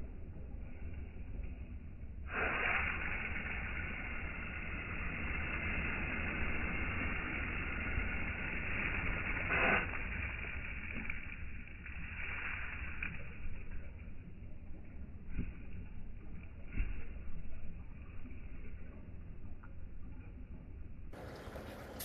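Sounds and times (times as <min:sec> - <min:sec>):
slowed garden hose spray: 0:02.2 - 0:18.2, 0:21.1 - 0:22.0.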